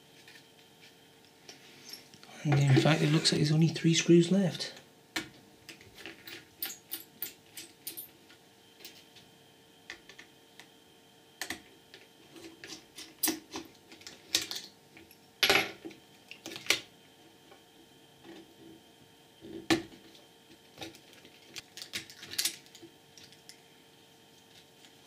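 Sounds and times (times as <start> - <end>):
small parts clattering: 20.8 - 23.6.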